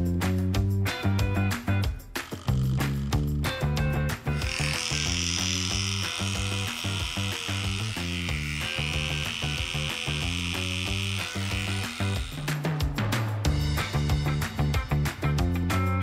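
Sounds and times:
background music: 0.0 - 16.0
electric clippers buzzing: 4.3 - 12.9.

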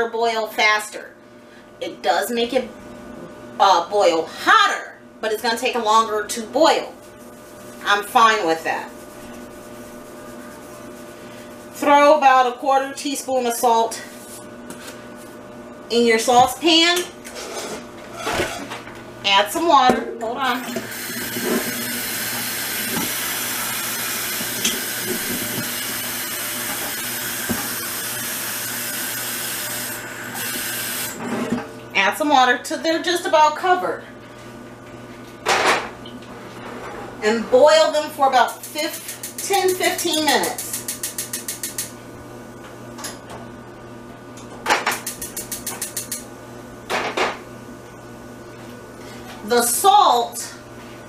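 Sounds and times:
gas stove igniter clicking: 38.5 - 42.0.

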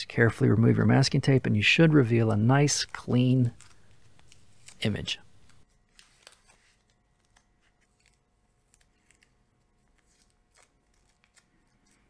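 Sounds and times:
masking tape peeling: 2.7 - 12.0.

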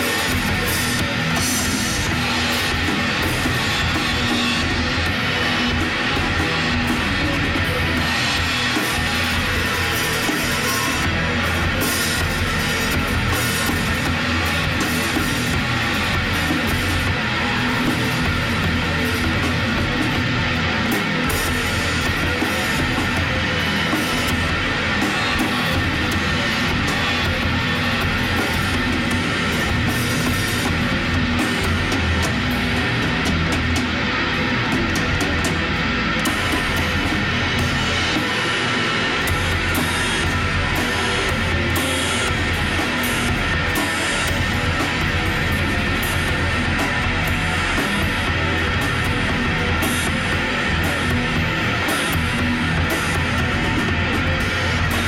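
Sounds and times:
band playing heavy rock: 0.0 - 55.0
drum and cymbal hits: 0.0 - 55.0
heavy metal instrumental: 0.0 - 55.0.

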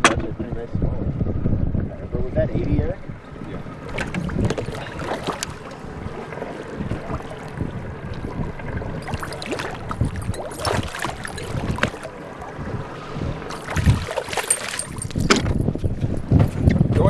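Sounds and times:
wind on microphone: 0.0 - 17.0
water lapping against boat hull: 1.4 - 17.0
fish splashing at surface: 3.9 - 5.8, 9.0 - 12.2, 13.5 - 15.3.

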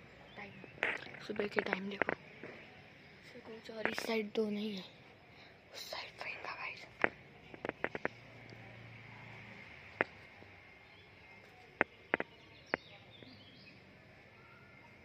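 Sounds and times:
faint bird chirps: 0.0 - 15.0
outdoor background noise: 0.0 - 15.0
sharp taps: 0.8 - 2.7, 7.0 - 8.6, 10.0 - 10.3, 11.8 - 12.9.

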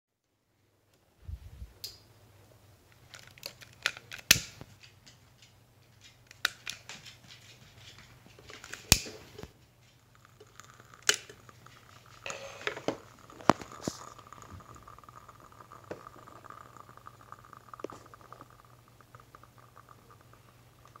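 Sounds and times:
low steady hum: 0.3 - 21.0
fire crackling: 2.8 - 21.0
faint steady tone: 10.0 - 21.0.

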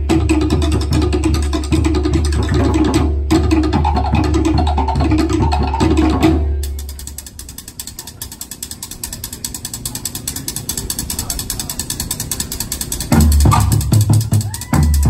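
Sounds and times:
fast loud drumming: 0.0 - 15.0
sticks clicking on slit drums: 6.6 - 15.0.

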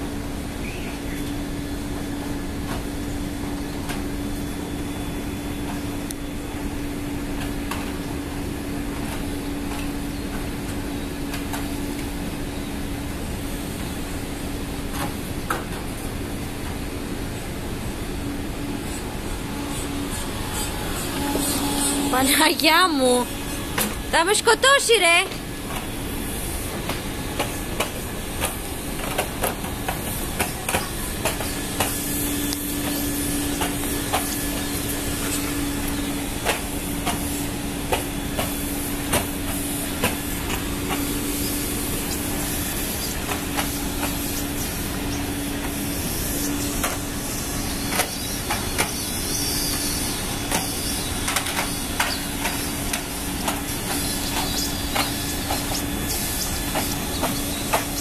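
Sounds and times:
ship machinery hiss and rumble: 0.0 - 58.0
steady hum: 17.4 - 28.8.

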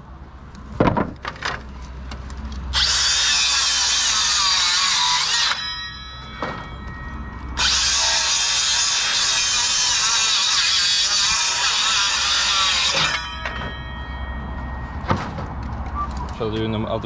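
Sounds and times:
circular saw cutting wood: 2.7 - 13.8.

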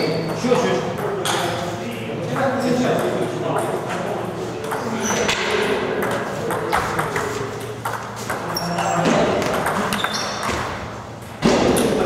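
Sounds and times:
table tennis balls clicking: 9.3 - 12.0.

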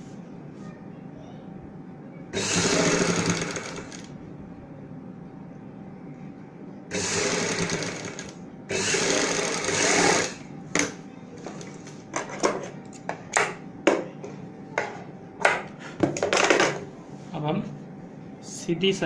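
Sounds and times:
sewing machine stitching: 2.4 - 4.1, 6.9 - 10.4.

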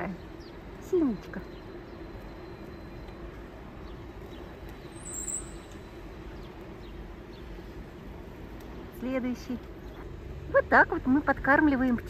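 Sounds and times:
small birds chirping: 0.0 - 7.8
distant city traffic hum: 0.0 - 12.0
high-pitched chirp: 4.9 - 5.9.

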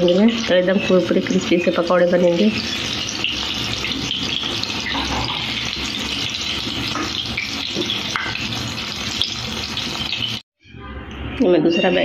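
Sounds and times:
fritters sizzling in hot oil: 0.0 - 10.4.

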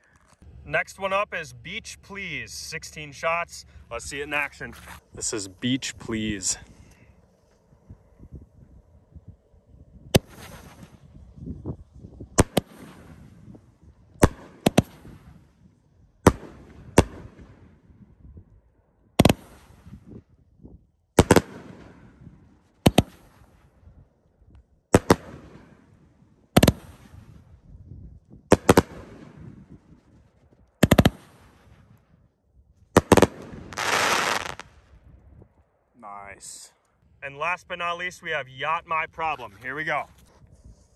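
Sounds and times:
dense fireworks crackling: 10.0 - 17.9, 19.2 - 20.1, 21.2 - 23.7, 25.0 - 27.5, 28.4 - 32.0, 32.9 - 35.0
fireworks shots with hiss: 10.1 - 11.4, 12.4 - 13.6, 14.2 - 15.6, 16.2 - 17.7, 19.2 - 20.2, 21.2 - 23.7, 24.9 - 26.0, 26.6 - 27.5, 28.5 - 29.7, 30.8 - 31.9, 33.0 - 35.0.

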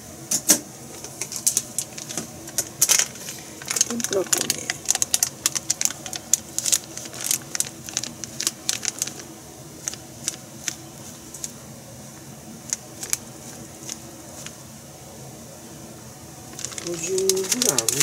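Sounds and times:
plastic bag crinkling: 1.3 - 11.6, 12.6 - 14.6, 16.5 - 18.0.

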